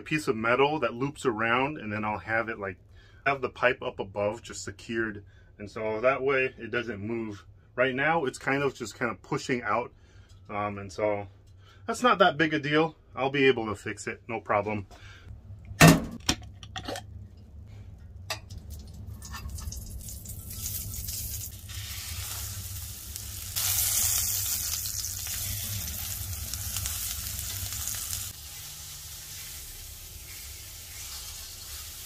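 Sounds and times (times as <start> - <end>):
burger patty sizzling: 18.4 - 32.0.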